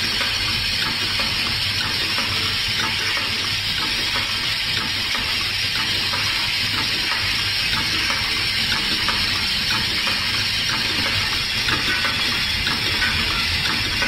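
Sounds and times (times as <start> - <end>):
machine hissing and humming: 0.0 - 14.0
pneumatic clicks and clacks: 0.0 - 14.0.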